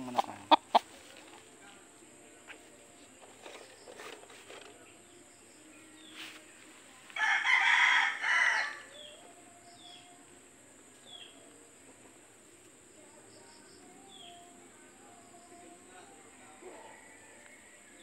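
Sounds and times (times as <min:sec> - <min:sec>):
rooster crowing: 0:07.2 - 0:09.2.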